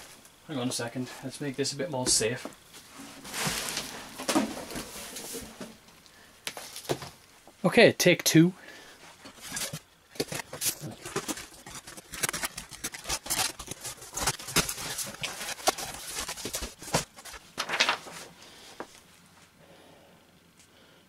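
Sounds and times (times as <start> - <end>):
plastic packing crinkling: 3.2 - 5.6, 9.3 - 18.4
paper rustling: 3.2 - 5.7, 9.3 - 18.9
cardboard box being opened: 9.5 - 18.2.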